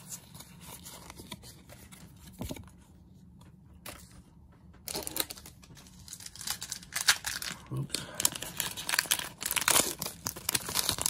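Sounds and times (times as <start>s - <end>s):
foil wrappers crinkling: 4.9s - 11.0s.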